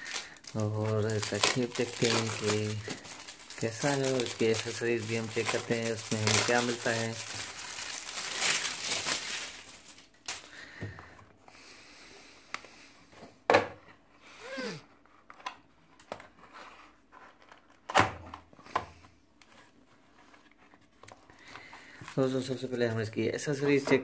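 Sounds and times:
plastic shrink-wrap crinkling: 0.0 - 10.7.

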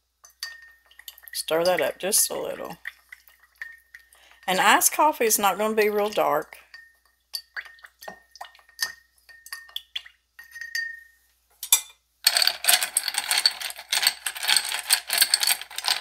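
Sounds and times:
spoon stirring in glass jar: 0.2 - 16.0
ice cubes clattering in glass: 12.3 - 16.0.

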